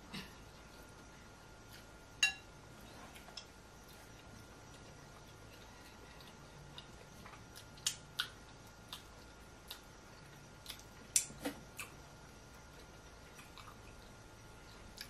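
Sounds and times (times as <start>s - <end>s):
lip smacks and chewing clicks: 4.7s - 12.0s.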